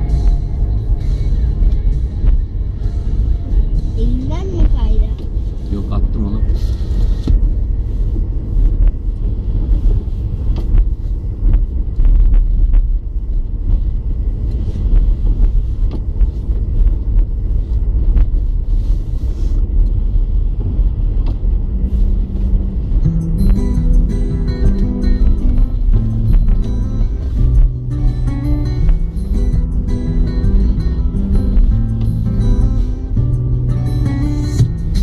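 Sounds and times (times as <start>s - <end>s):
music: 0.0s - 9.0s, 22.5s - 35.0s
car engine and tyre rumble: 0.0s - 35.0s.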